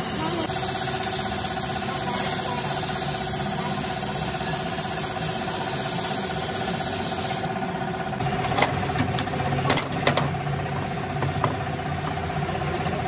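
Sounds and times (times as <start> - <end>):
hiss: 0.0 - 7.5.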